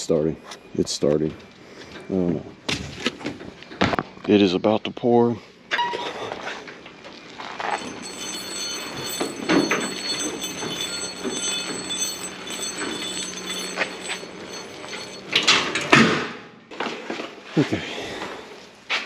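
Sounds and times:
small wheels rumbling on concrete: 7.4s - 15.9s
metal rattling: 7.6s - 15.9s
dolly handle clanking: 7.6s - 16.0s.

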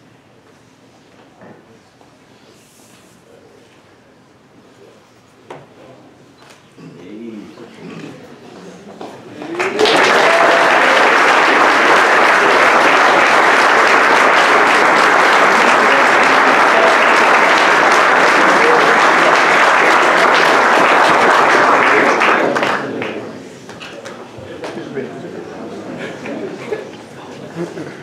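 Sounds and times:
audience applauding: 9.4s - 23.4s.

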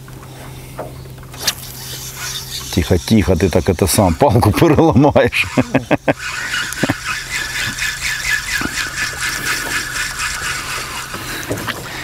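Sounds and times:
spinning reel clicking and whirring: 1.3s - 12.0s.

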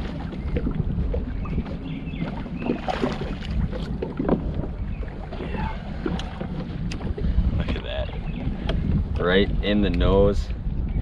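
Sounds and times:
fish splashing and knocking: 0.0s - 8.9s
waves lapping against boat hull: 0.0s - 11.0s
wind buffeting microphone: 0.0s - 11.0s.

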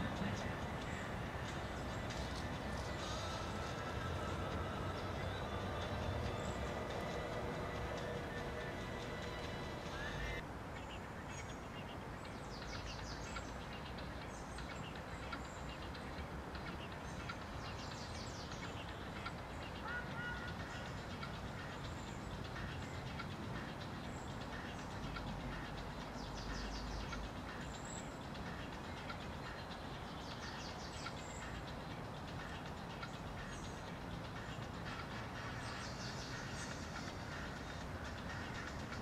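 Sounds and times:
outdoor background rumble: 0.0s - 10.4s.

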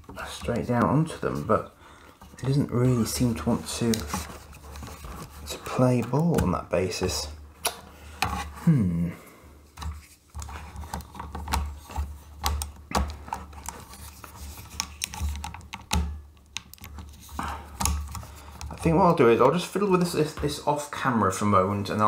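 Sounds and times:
small plastic clicks and scrapes: 9.8s - 18.9s.

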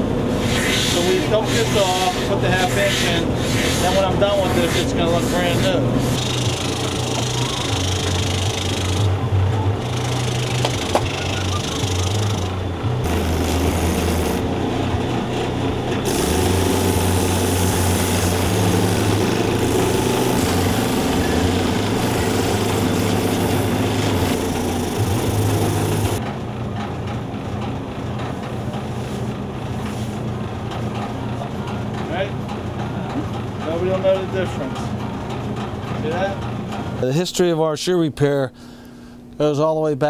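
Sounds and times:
machine motor humming: 0.0s - 26.2s
shoe grinding on sanding wheel: 0.3s - 9.1s, 9.8s - 14.4s, 16.0s - 26.2s.

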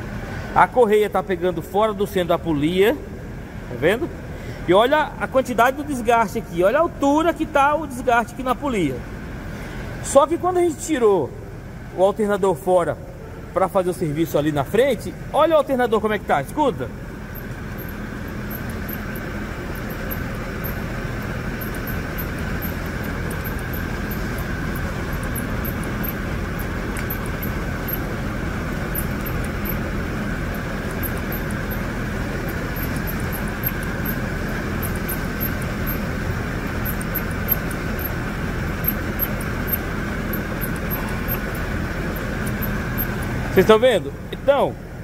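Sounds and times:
alternator bearing grinding: 13.2s - 45.0s
faint high ticks: 21.6s - 28.1s, 30.5s - 31.9s, 34.8s - 36.1s, 36.8s - 38.2s.

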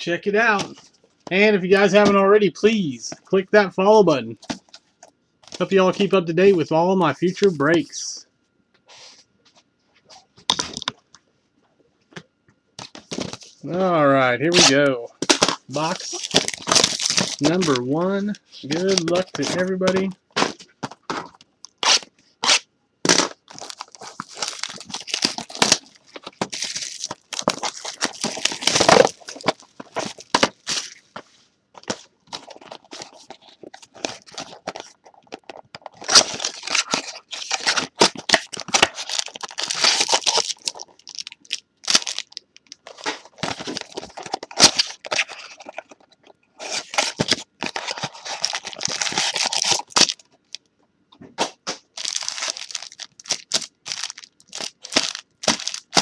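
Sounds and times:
plastic wrapping crinkling and tearing: 14.5s - 31.1s, 31.8s - 50.6s, 51.8s - 56.0s.

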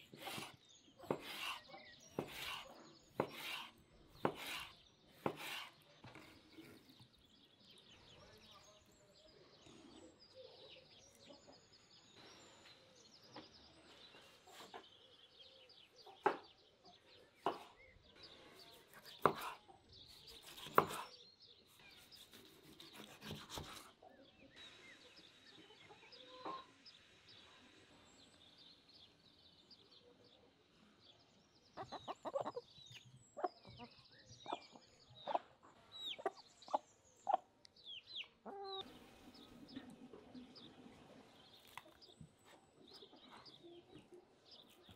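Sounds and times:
chickens clucking: 31.8s - 37.5s, 38.2s - 44.9s.

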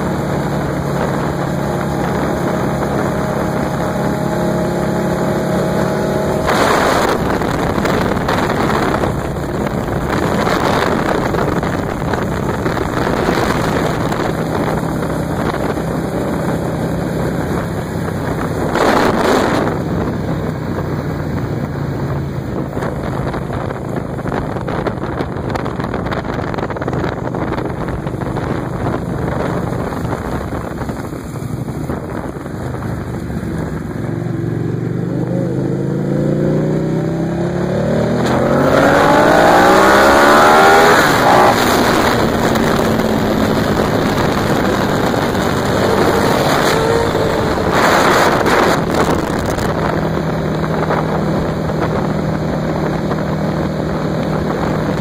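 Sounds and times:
motorcycle engine running: 0.0s - 55.0s
wind rushing over microphone: 0.0s - 55.0s.

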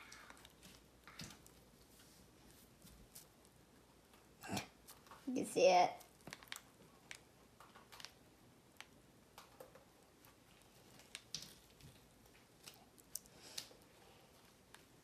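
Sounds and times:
plastic bag crinkling: 6.0s - 8.2s.

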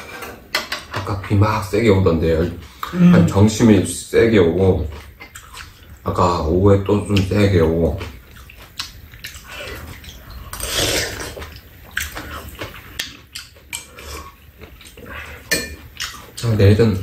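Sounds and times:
people slurping soup: 9.3s - 12.8s.

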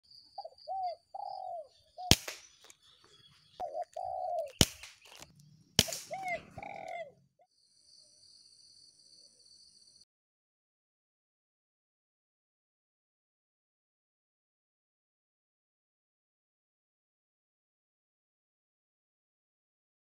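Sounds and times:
doves cooing: 0.4s - 7.4s
air rifle shot: 2.1s - 2.6s, 4.5s - 5.1s, 5.8s - 6.7s.

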